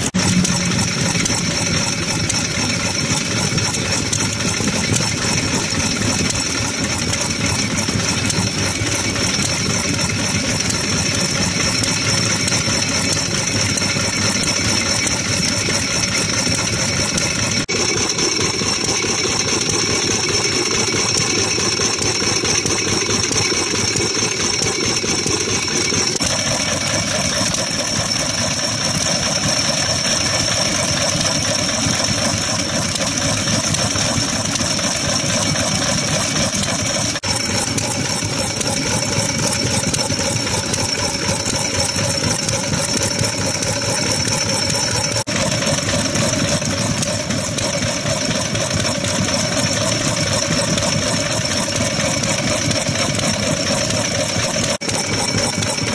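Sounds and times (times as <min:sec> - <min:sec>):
high-pitched whine: 0:00.0 - 0:03.6
stationary engine running: 0:00.0 - 0:55.9.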